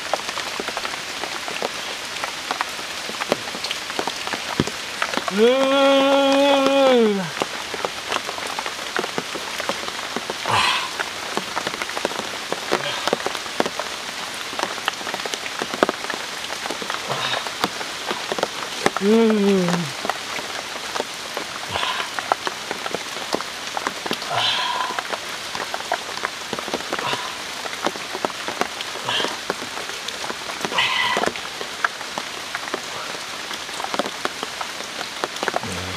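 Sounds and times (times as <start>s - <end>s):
rain pattering on leaves: 0.0s - 35.9s
person humming: 5.3s - 7.3s, 18.9s - 20.0s, 35.6s - 35.9s.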